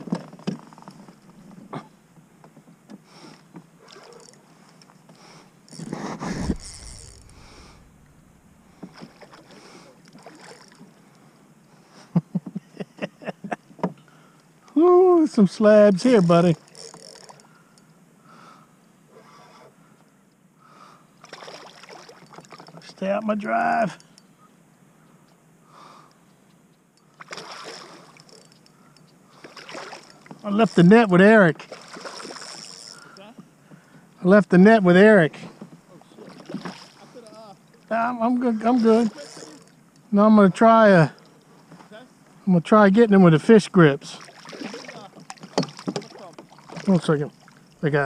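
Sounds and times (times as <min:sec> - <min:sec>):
fishing reel clicking: 0:06.5 - 0:07.4, 0:16.2 - 0:17.5, 0:27.7 - 0:29.1, 0:32.4 - 0:33.0, 0:39.1 - 0:39.8
fish splashing in water: 0:21.2 - 0:22.8, 0:27.2 - 0:28.2, 0:29.4 - 0:30.3, 0:31.6 - 0:32.7, 0:44.2 - 0:47.8.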